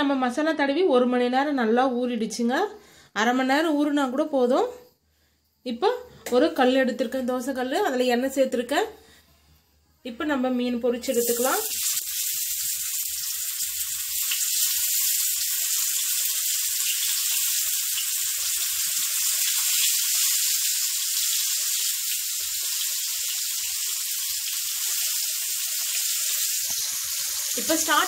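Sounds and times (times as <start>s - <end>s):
fish sizzling in hot oil: 11.0s - 28.0s.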